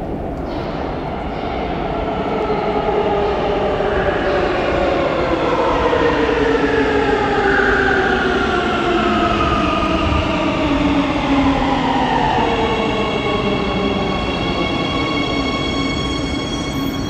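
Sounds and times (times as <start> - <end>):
steady high tones: 12.6 - 17.0.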